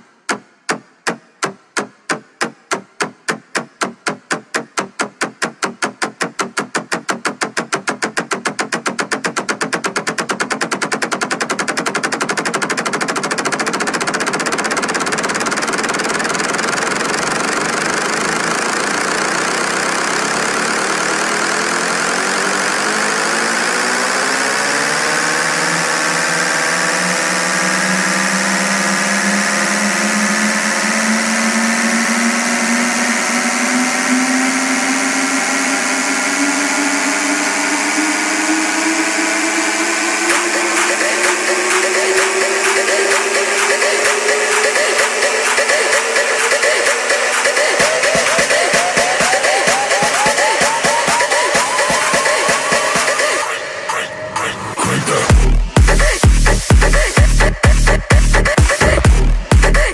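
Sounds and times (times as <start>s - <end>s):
snare roll: 0.1s - 20.6s
rising synth sweep: 13.1s - 59.9s.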